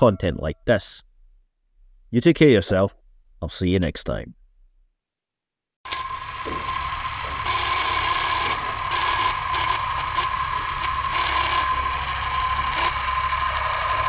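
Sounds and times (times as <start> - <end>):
film projector whirring and rattling: 5.9 - 14.0.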